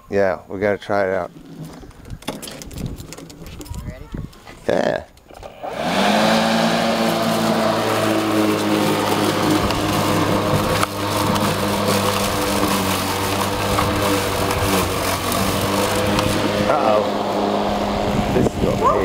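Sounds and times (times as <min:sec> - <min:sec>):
electric lawn mower humming: 0:05.2 - 0:19.0.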